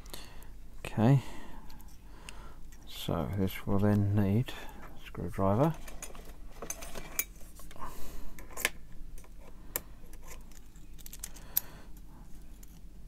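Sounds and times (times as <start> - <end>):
plastic and metal parts clicking: 10.1 - 11.4.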